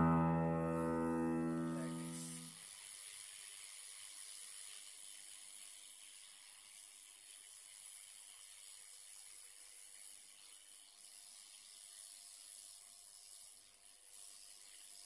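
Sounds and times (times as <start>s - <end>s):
hot air hissing: 0.0s - 2.6s.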